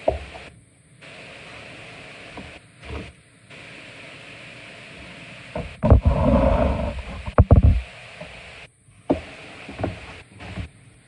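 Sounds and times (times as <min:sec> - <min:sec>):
steady hiss: 0:00.0 - 0:11.0
sharp knocks: 0:07.3 - 0:07.8.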